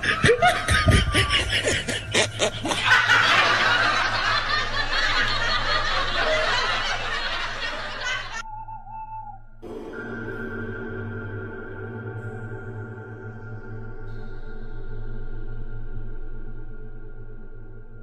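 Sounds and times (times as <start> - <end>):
person laughing: 0.0 - 8.4.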